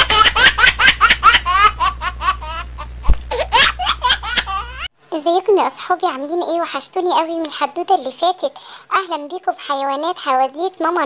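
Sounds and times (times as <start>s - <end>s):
high-pitched laughter: 0.0s - 4.9s.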